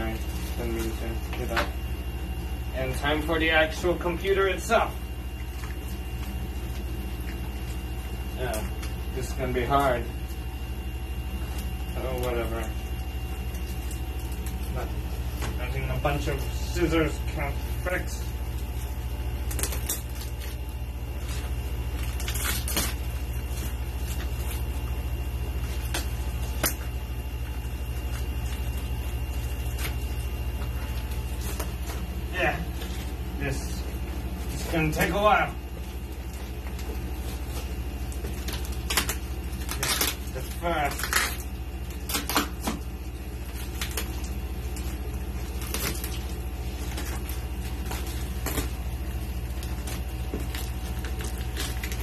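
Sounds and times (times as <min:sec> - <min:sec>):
steady low hum: 0:00.0 - 0:52.0
scissors cutting plastic wrapping: 0:18.6 - 0:32.1, 0:36.7 - 0:52.0
packaging rustling: 0:34.0 - 0:52.0.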